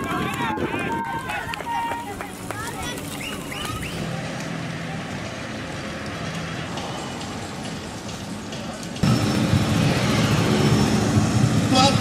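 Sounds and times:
traffic engine hum: 0.0 - 12.0.

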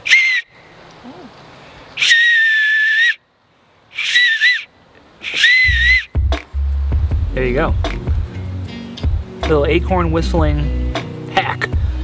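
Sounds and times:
high-pitched acorn cap whistles: 0.0 - 0.6, 2.0 - 3.2, 3.9 - 6.3.

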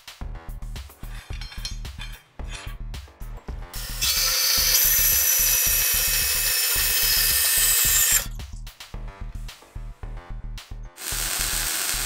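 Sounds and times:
background music with steady beat: 0.0 - 12.0
band saw cutting steel: 3.8 - 8.3, 11.0 - 12.0.

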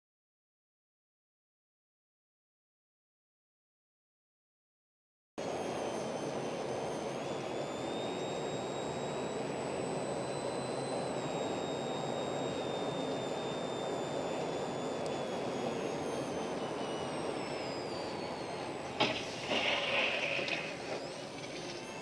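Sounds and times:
car road and engine noise: 5.4 - 22.0
thin high whine: 5.4 - 22.0.

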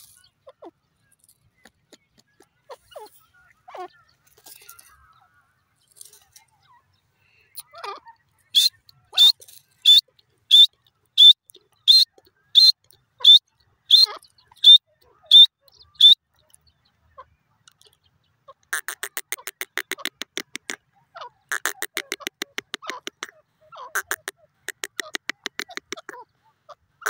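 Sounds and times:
bird rattling chatter: 4.2 - 5.1, 18.7 - 20.8, 21.5 - 23.3, 24.0 - 26.1
bird calling sharp high notes: 8.5 - 16.2, 18.7 - 20.8, 21.5 - 26.2.

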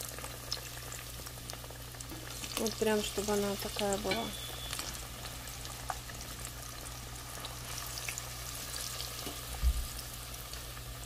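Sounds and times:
potatoes sizzling in hot oil: 0.0 - 11.0.

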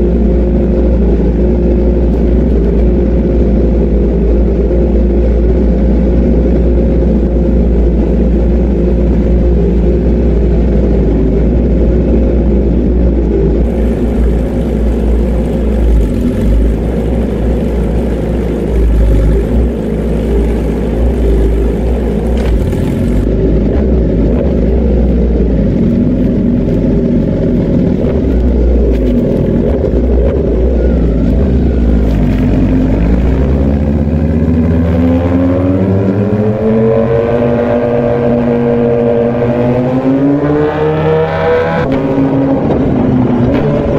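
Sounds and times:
motorcycle engine revving: 13.6 - 43.9.

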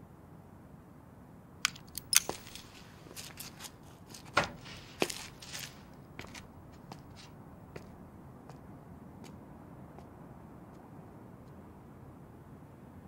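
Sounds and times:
sharp clicks and cracks: 1.6 - 2.7.

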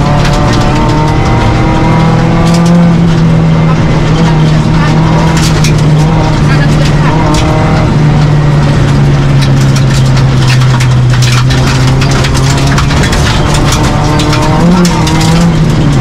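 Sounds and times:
car engine at speed: 0.0 - 16.0
road noise: 0.0 - 16.0
scattered clicks: 5.0 - 16.0.

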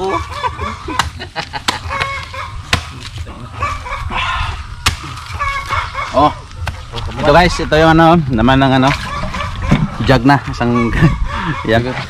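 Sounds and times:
poultry clucking: 0.0 - 7.0, 8.9 - 12.0
machete chopping coconuts: 0.2 - 3.4, 4.8 - 5.8, 6.6 - 7.0.

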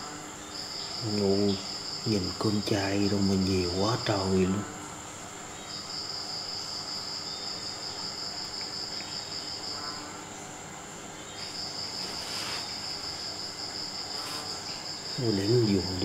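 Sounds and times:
crickets chirring: 0.0 - 16.0
soft rustle: 11.3 - 15.1.

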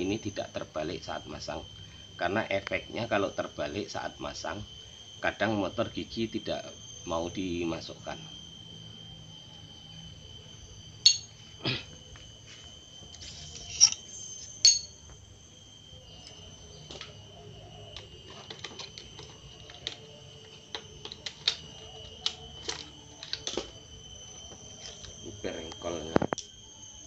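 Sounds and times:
metal tools clanking on engine parts: 11.0 - 11.3, 13.7 - 15.0.

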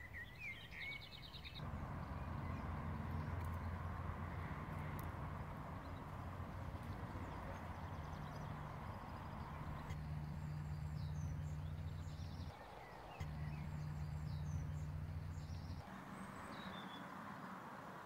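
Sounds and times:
birds chirping: 0.0 - 18.0
old car engine idling: 1.6 - 15.9.

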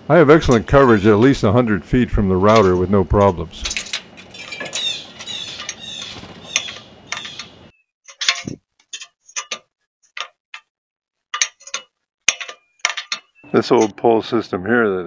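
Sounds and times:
birds chirping: 2.7 - 7.7, 13.2 - 14.6.

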